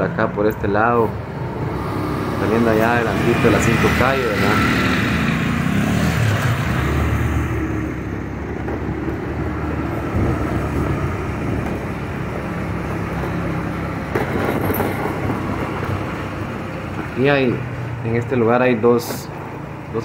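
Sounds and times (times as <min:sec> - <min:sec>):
vehicle engine and road rumble: 0:00.0 - 0:20.0.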